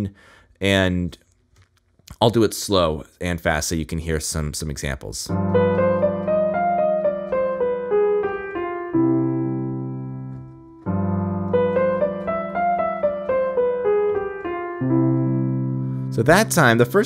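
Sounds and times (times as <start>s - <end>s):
piano playing bebop line: 5.3s - 17.0s.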